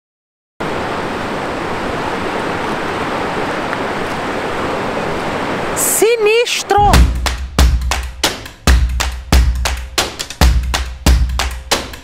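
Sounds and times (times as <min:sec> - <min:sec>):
waterfall rushing: 0:00.6 - 0:08.6.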